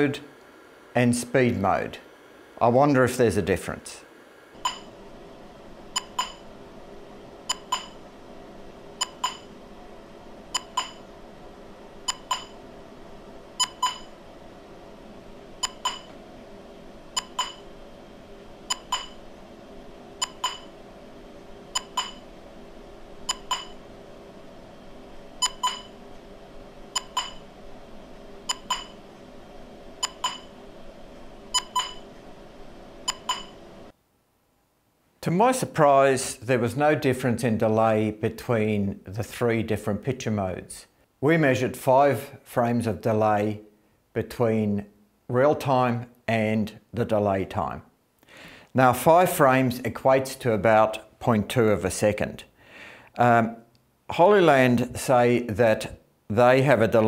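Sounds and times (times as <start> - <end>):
steady low hum: 0.0 - 57.0
short beeps: 4.6 - 4.9, 13.6 - 14.1, 25.4 - 25.9, 27.0 - 27.4, 31.6 - 32.0.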